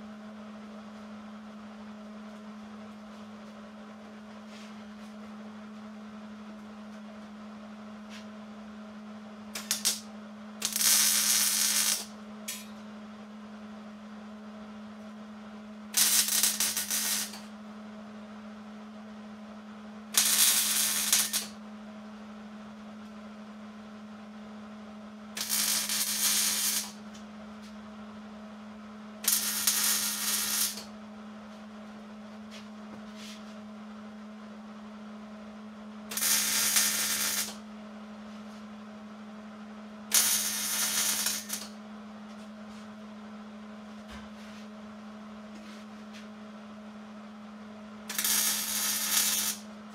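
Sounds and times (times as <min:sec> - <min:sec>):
steady low hum: 0:00.0 - 0:49.9
welding arc crackling: 0:09.6 - 0:12.6, 0:16.0 - 0:17.5, 0:20.2 - 0:21.5, 0:25.4 - 0:27.0, 0:29.2 - 0:30.9, 0:36.1 - 0:37.6, 0:40.1 - 0:41.7, 0:48.1 - 0:49.7.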